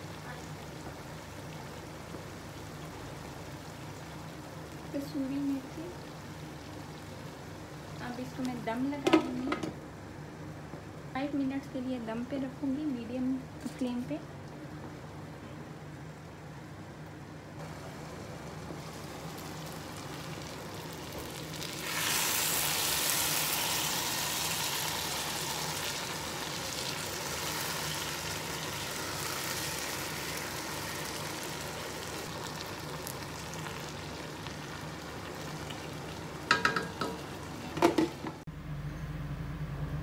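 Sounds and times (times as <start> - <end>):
vegetables sizzling in oil: 0.0 - 9.8, 17.6 - 38.4.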